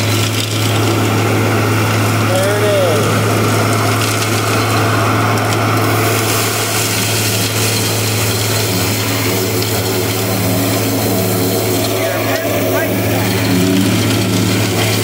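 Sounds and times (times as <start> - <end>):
truck engine drone: 0.0 - 15.0
suction air hissing: 3.1 - 15.0.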